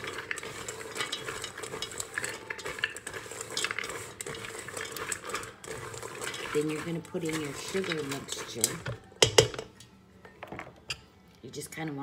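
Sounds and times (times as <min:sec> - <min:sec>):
spatula scraping metal bowl: 0:00.0 - 0:09.5.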